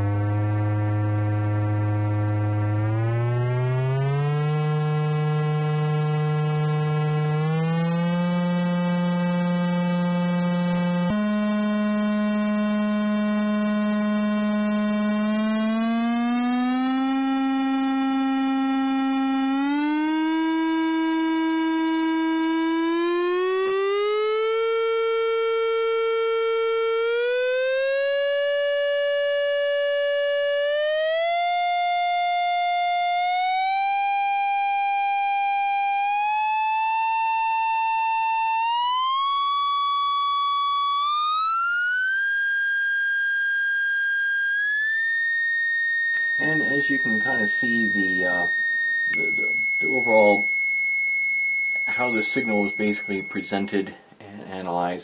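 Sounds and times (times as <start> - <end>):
buzzy sweeping test tone: 0.0 - 54.0.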